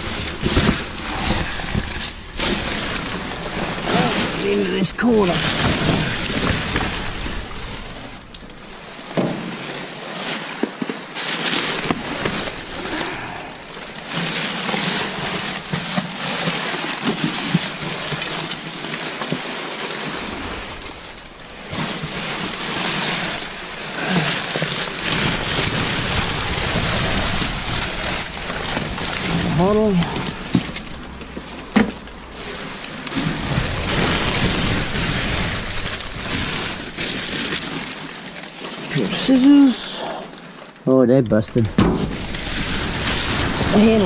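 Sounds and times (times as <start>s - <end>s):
plastic bags crinkling and rustling: 0.0s - 44.0s
cardboard and plastic knocks: 9.1s - 9.5s, 31.7s - 32.1s, 41.7s - 42.3s.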